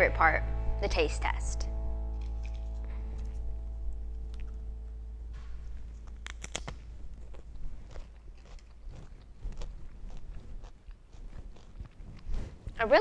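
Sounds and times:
chip crunching: 5.9 - 12.8
chewing with soft crunches: 6.0 - 12.8.

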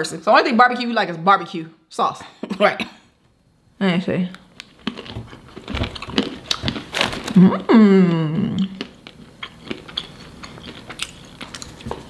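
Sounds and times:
crunching and chewing nuts: 4.6 - 7.7, 8.6 - 12.0
person humming mmm: 7.4 - 8.8.

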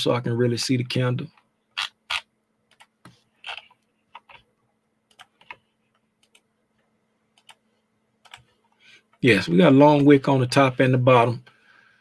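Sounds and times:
faint steady hum: 0.0 - 12.0
computer mouse and keyboard clicks: 1.8 - 4.5, 5.1 - 6.4, 7.4 - 7.6, 8.2 - 8.6.

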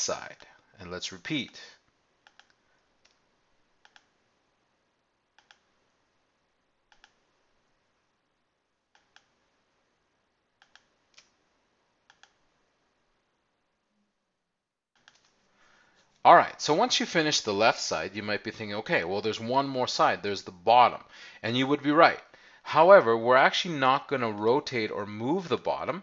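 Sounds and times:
faint room hiss: 0.0 - 26.0
computer mouse clicks: 2.2 - 3.2, 3.8 - 4.2, 5.4 - 5.7, 6.9 - 7.2, 8.9 - 9.4, 10.6 - 11.4, 12.1 - 12.4, 15.0 - 15.4.

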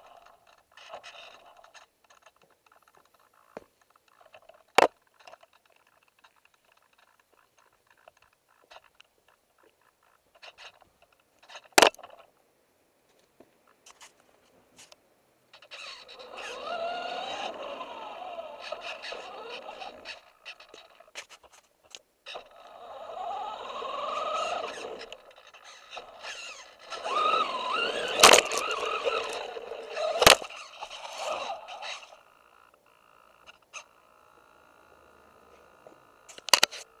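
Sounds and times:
toy truck motor whining: 0.0 - 3.6, 15.5 - 21.5, 22.2 - 37.0
tyres scraping: 15.6 - 32.4.

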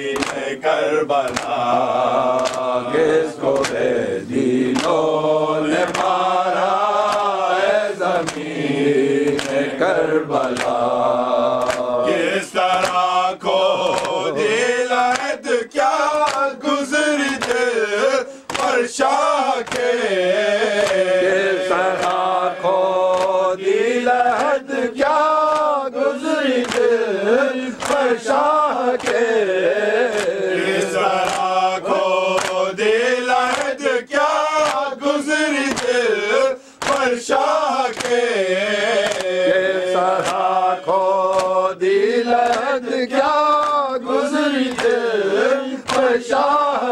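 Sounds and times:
lead reciter: 0.0 - 46.9
men singing in unison: 0.0 - 46.9.

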